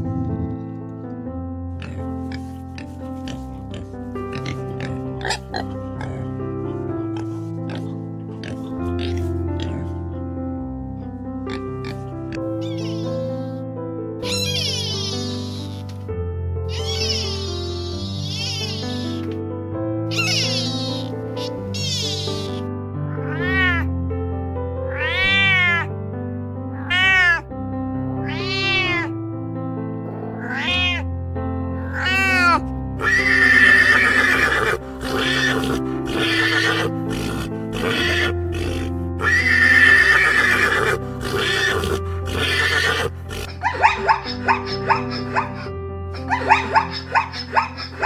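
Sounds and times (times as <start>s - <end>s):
background music: 0.0s - 48.0s
animal calls: 12.6s - 13.6s, 14.2s - 15.9s, 16.7s - 19.3s, 20.1s - 22.6s, 32.0s - 48.0s.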